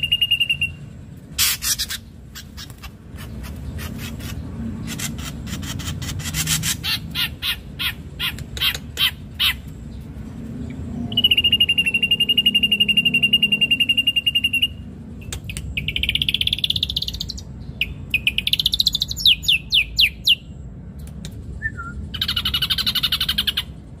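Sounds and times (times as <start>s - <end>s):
bird singing chips and trills: 10.7s - 20.5s, 21.6s - 23.7s.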